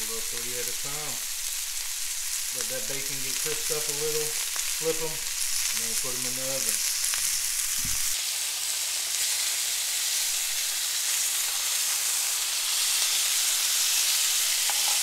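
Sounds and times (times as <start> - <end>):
food sizzling in a skillet: 0.0 - 15.0
low thump: 7.8 - 8.1
metal tongs turning food: 13.9 - 15.0.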